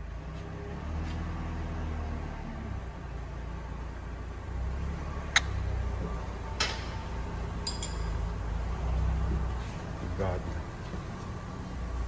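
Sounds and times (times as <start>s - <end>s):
wrench clinking on metal: 7.6s - 8.3s.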